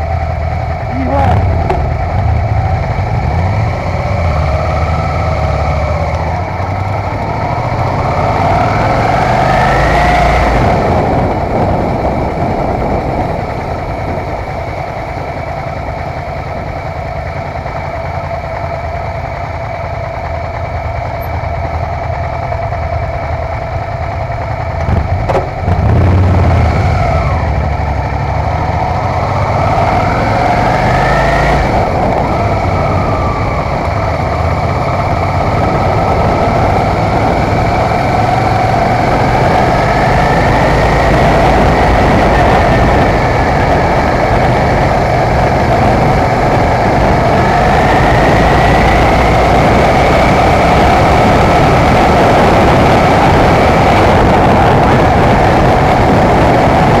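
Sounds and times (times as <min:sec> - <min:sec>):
other motorcycles idling: 0:00.0 - 0:08.4, 0:10.9 - 0:26.2
motorcycle engine: 0:00.0 - 0:57.0
wind and road noise: 0:00.0 - 0:57.0.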